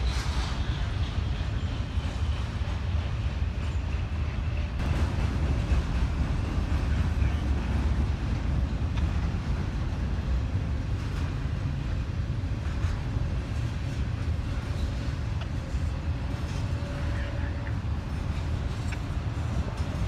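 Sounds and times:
freight train rumbling past: 0:00.0 - 0:20.0.

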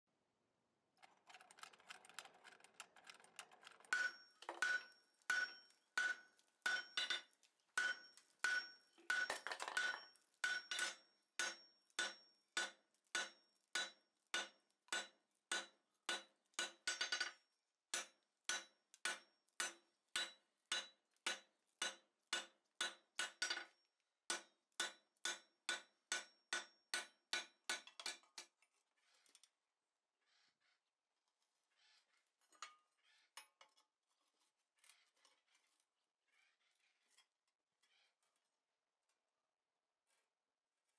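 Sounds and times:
anvil ringing: 0:03.9 - 0:07.2, 0:07.8 - 0:16.8
hammer striking steel on anvil: 0:03.9 - 0:23.7, 0:24.3 - 0:28.4.

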